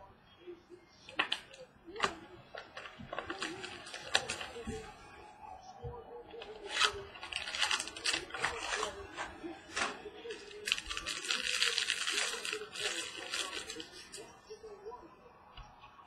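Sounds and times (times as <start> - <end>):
plastic wrapper crinkling: 1.1 - 4.9, 6.4 - 14.3.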